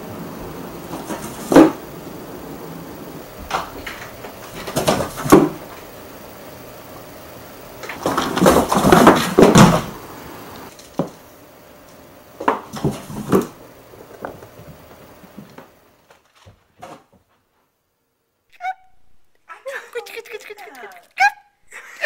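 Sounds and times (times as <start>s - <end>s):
cat scrambling in cardboard boxes: 0.8s - 1.8s, 3.5s - 5.6s, 7.9s - 10.0s, 12.6s - 15.6s.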